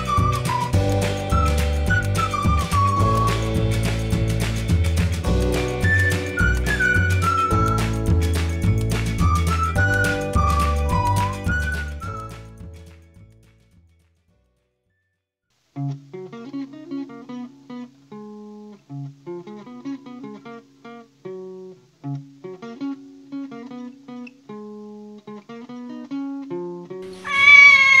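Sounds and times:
acoustic guitar playing bouncy tune: 0:00.0 - 0:14.4, 0:15.8 - 0:27.2
loud drawn-out high call: 0:27.1 - 0:28.0.

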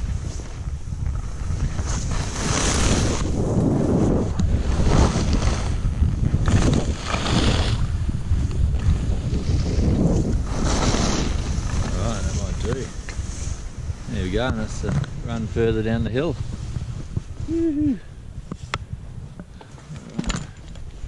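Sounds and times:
skis sliding on snow: 0:00.0 - 0:17.6
wind buffeting microphone: 0:00.0 - 0:21.0.

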